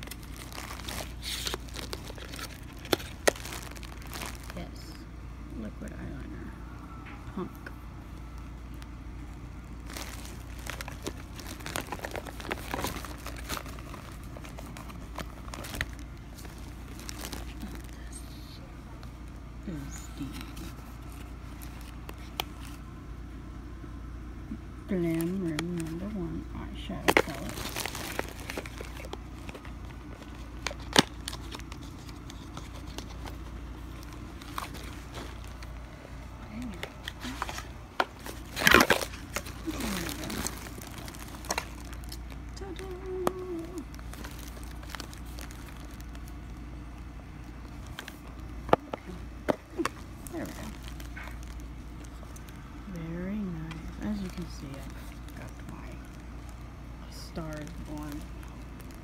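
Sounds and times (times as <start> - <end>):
packaging crinkling and rustling: 0.0 - 5.0, 7.0 - 22.9, 24.9 - 59.0.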